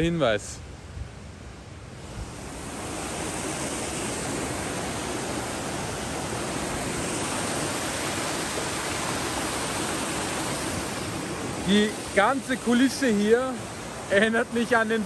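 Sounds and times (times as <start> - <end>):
stream rushing over rocks: 2.0 - 15.0.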